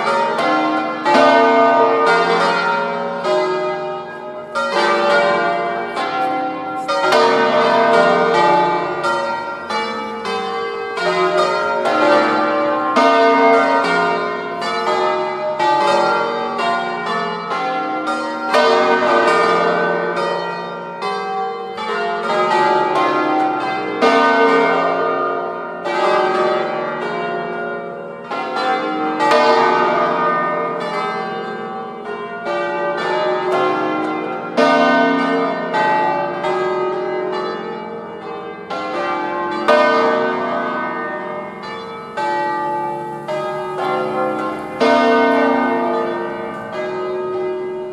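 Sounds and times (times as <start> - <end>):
church bells ringing: 0.0 - 47.9.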